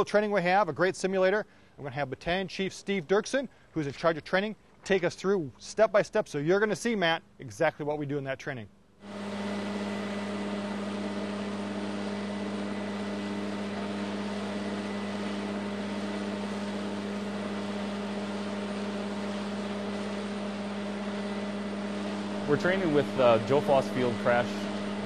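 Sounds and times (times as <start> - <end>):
large engine humming steadily: 9.0 - 25.0.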